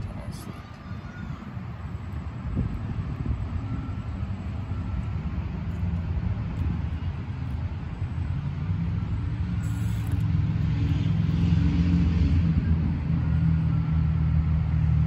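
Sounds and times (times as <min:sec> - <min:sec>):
small electric motor and gears humming: 0:00.0 - 0:11.6.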